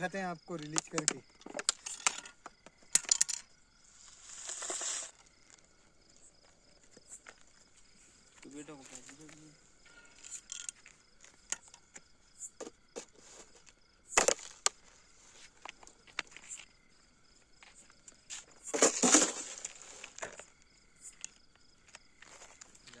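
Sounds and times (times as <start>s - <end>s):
plastic jar clicking: 0.6s - 2.2s
scraping rustle on gravel: 3.8s - 5.7s, 18.3s - 20.5s.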